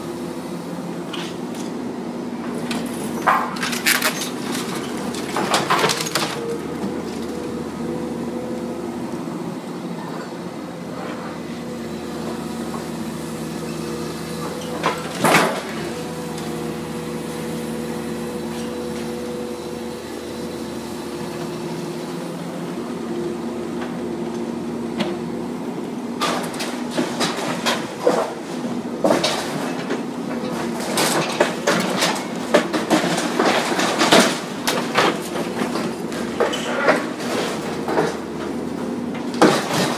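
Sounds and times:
excavator diesel engine running: 0.0s - 39.9s
debris crashing and clattering: 2.8s - 7.5s, 26.2s - 39.9s.

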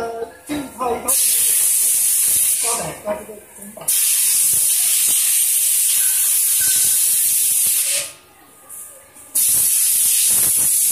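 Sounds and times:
compressed air blow gun hissing: 1.1s - 2.8s.

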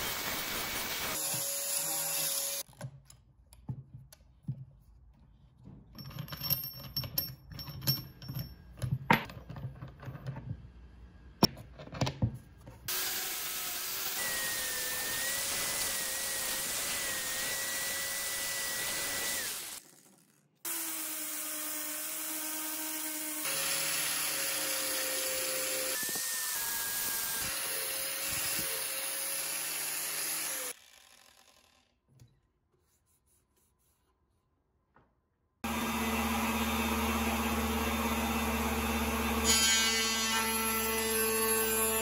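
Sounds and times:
power sander on wood: 12.9s - 19.8s, 20.7s - 31.5s, 35.6s - 41.1s.

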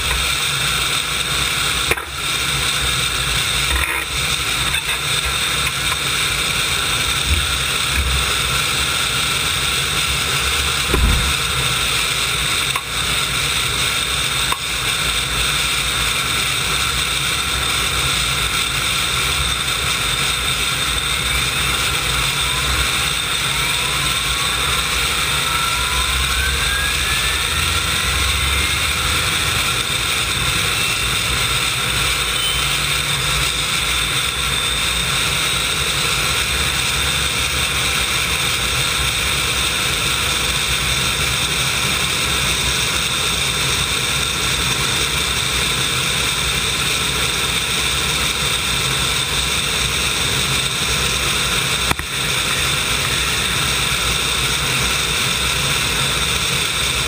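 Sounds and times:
rushing hiss: 0.0s - 57.0s
turbine engine whine: 0.0s - 57.0s
low thump: 10.9s - 11.4s
faint rising whines: 20.4s - 35.9s.

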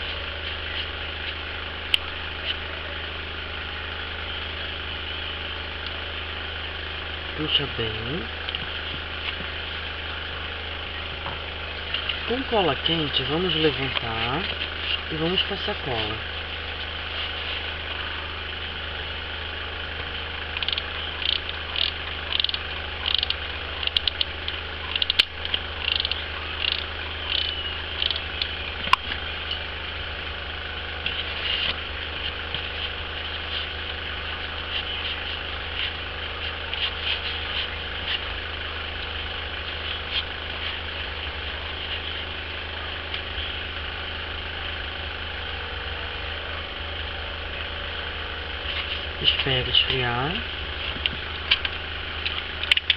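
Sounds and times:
low hum: 0.0s - 52.9s
sharp clicks: 20.5s - 29.1s, 51.5s - 52.9s.

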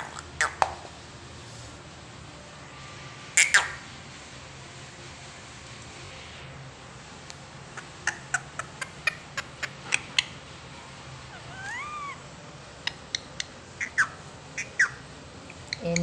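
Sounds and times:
parakeet squawks: 0.0s - 0.7s, 3.4s - 3.8s, 7.8s - 10.4s, 11.3s - 12.2s, 12.8s - 16.0s
rising and falling parakeet call: 3.4s - 3.8s, 7.8s - 10.4s, 11.3s - 15.0s.

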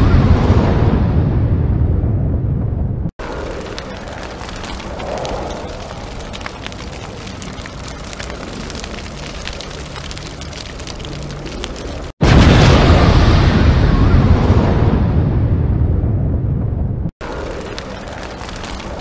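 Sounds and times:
steady rumbling: 0.2s - 19.0s
small crackles and pops: 3.2s - 12.2s, 17.2s - 19.0s.

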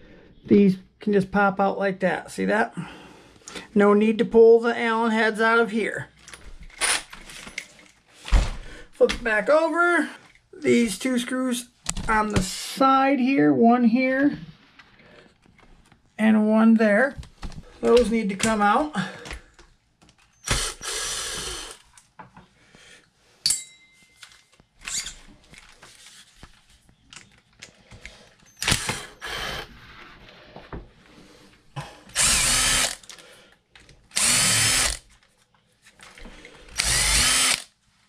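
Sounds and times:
drill-driver whirring: 20.4s - 21.8s, 28.6s - 29.7s, 32.1s - 33.1s, 34.1s - 35.1s, 36.7s - 37.8s.

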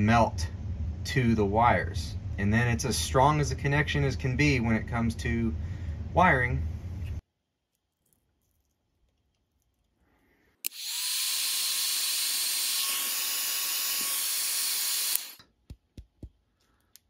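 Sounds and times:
heat gun blowing hot air: 10.6s - 15.4s.

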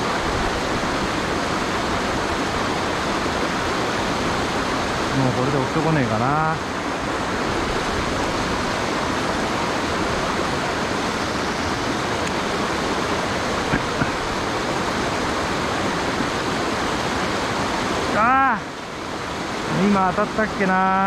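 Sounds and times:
stream rushing over rocks: 0.0s - 21.0s.

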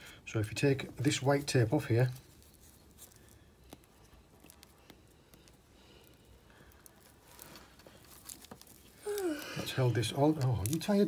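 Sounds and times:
adhesive tape peeling off rope: 2.2s - 11.0s.

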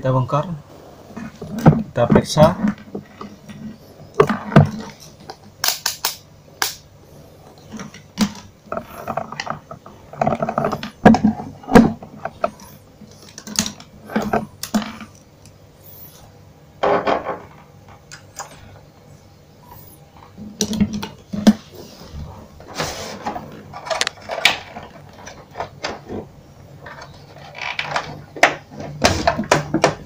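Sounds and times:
low steady hum: 0.0s - 30.0s
multimeter and leads clicking and rattling: 1.6s - 6.8s, 7.6s - 16.2s, 23.2s - 26.2s.

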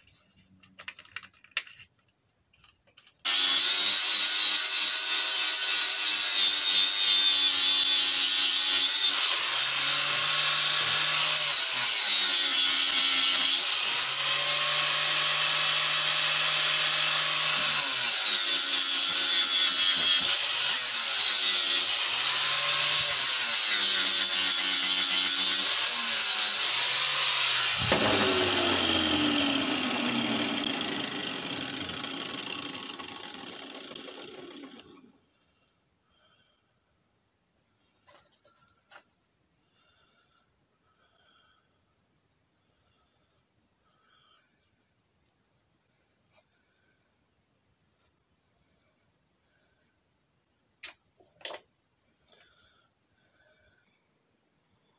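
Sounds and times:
angle grinder grinding steel: 3.3s - 35.2s.

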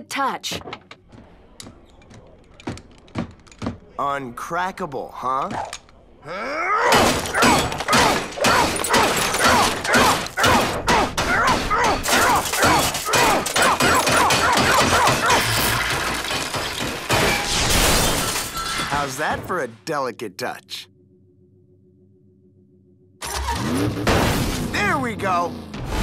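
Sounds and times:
cartoon crashes and bangs: 23.2s - 24.9s.

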